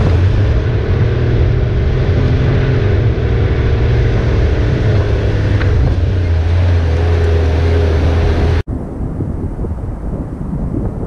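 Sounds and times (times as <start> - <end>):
diesel engine droning: 0.0 - 8.7
wind noise on microphone: 0.0 - 11.0.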